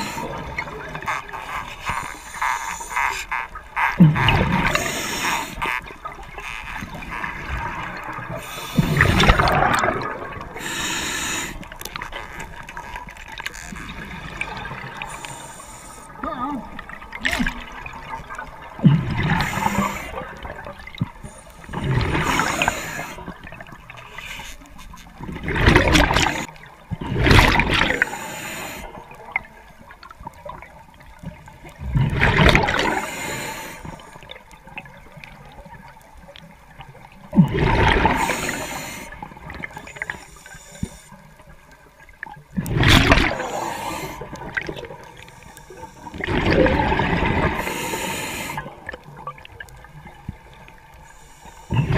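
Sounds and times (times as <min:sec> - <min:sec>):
regulator inhale hiss: 0:00.0 - 0:00.5, 0:04.6 - 0:05.6, 0:08.4 - 0:09.2, 0:10.6 - 0:11.8, 0:15.0 - 0:16.2, 0:19.3 - 0:20.2, 0:21.2 - 0:23.3, 0:24.0 - 0:24.7, 0:28.0 - 0:29.0, 0:32.8 - 0:34.2, 0:38.1 - 0:41.2, 0:43.4 - 0:44.5, 0:45.2 - 0:46.3, 0:47.5 - 0:48.8, 0:51.0 - 0:51.9
exhaled bubbles rushing underwater: 0:00.0 - 0:01.8, 0:04.0 - 0:24.2, 0:25.2 - 0:51.9
quiet bubbling: 0:00.0 - 0:51.9.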